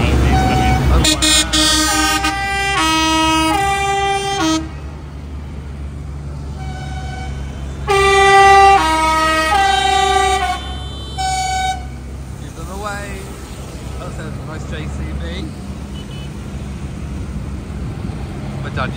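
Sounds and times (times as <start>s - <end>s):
tractor engines running: 0.0s - 18.9s
musical horn playing a tune: 0.2s - 4.8s, 6.6s - 12.0s.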